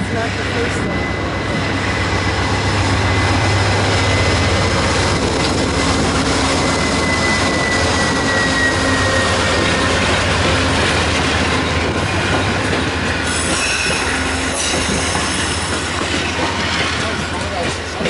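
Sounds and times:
diesel locomotive engine drone: 0.0s - 18.0s
wheel-on-rail noise: 0.0s - 18.0s.

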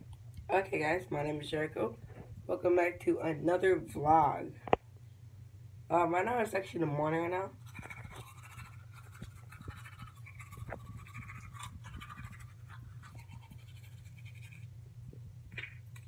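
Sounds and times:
steady low hum: 0.0s - 16.0s
toothbrush scrubbing teeth: 7.6s - 14.8s.

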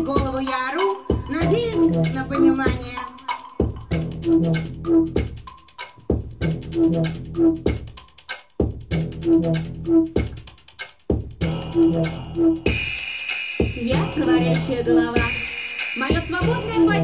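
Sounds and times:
drum machine beat: 0.0s - 17.0s
low repeating synth figure: 1.1s - 2.9s, 11.4s - 13.0s.

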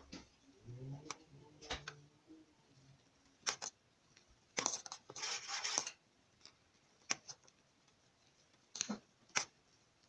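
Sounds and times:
spoon scraping and stirring: 4.6s - 6.5s.

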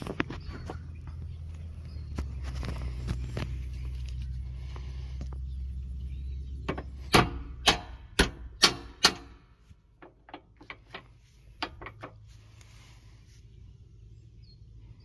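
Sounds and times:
low steady rumble: 0.0s - 15.0s
hammer striking metal pin: 6.7s - 9.4s.

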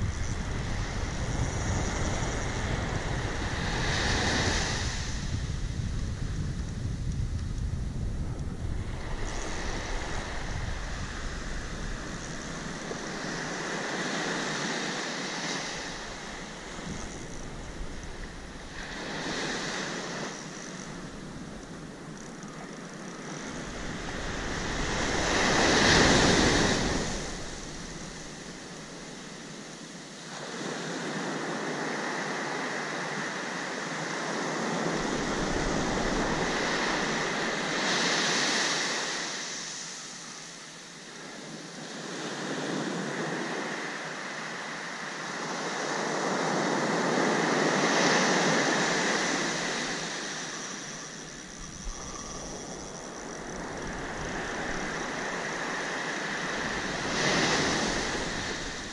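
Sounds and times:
wind rumble on microphone: 0.0s - 39.6s, 45.2s - 58.9s
ocean surf breaking: 8.4s - 29.4s, 34.2s - 40.0s, 42.6s - 58.9s.

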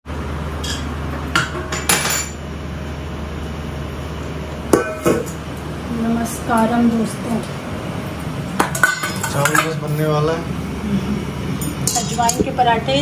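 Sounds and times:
steady low hum: 0.1s - 13.0s
dishes and utensils clattering: 0.6s - 2.4s, 8.6s - 10.0s, 11.6s - 12.5s.

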